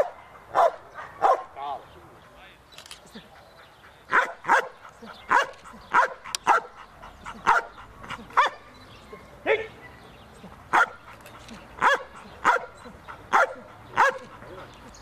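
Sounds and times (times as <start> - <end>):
dog barking: 0.0 - 1.5, 4.1 - 9.7, 10.7 - 11.1, 11.8 - 14.4.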